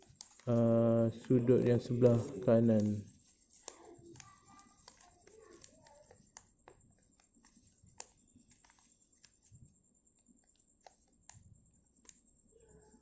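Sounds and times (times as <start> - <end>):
paper being folded and creased: 0.0 - 9.5.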